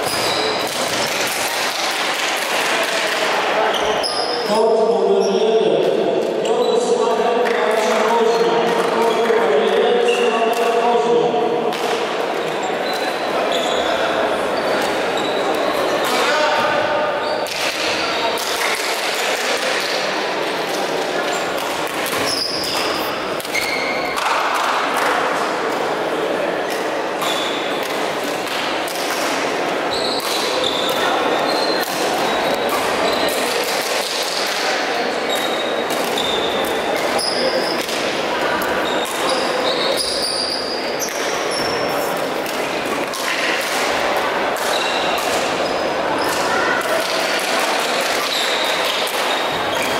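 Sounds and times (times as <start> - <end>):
shoe squeaks: 0.0 - 0.6, 3.6 - 5.8, 9.8 - 10.5, 12.4 - 18.2, 21.3 - 24.2, 27.2 - 27.7, 29.9 - 33.4, 35.2 - 37.8, 38.7 - 42.1, 44.7 - 46.7, 48.2 - 49.9
murmur of voices: 0.0 - 49.9
sports hall background noise: 0.0 - 49.9.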